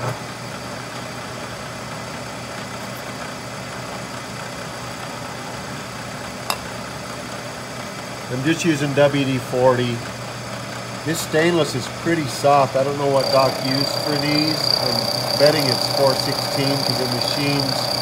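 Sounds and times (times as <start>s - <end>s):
milling machine humming: 10.8s - 18.0s.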